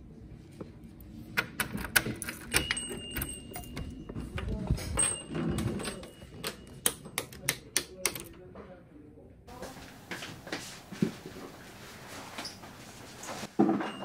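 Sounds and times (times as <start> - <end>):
door handle and lock rattling: 1.4 - 4.0.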